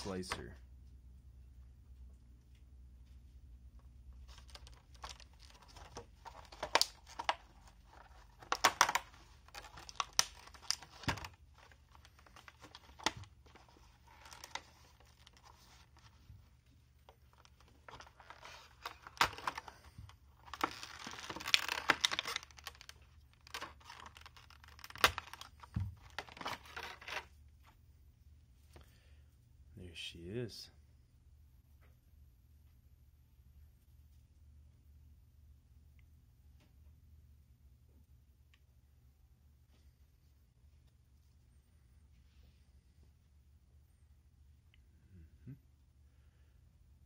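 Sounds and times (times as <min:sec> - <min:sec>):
plastic crinkling and tearing: 0:04.2 - 0:16.2, 0:17.1 - 0:27.3
plastic packaging clicks and crackles: 0:04.2 - 0:16.2, 0:17.0 - 0:27.3.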